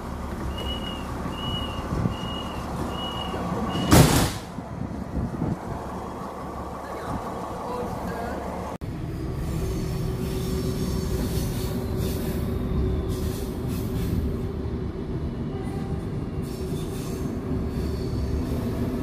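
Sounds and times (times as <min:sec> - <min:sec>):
train coach rumbling on track: 0:00.0 - 0:19.0
wheels squealing and hissing: 0:00.4 - 0:04.1, 0:09.4 - 0:14.4, 0:16.3 - 0:19.0.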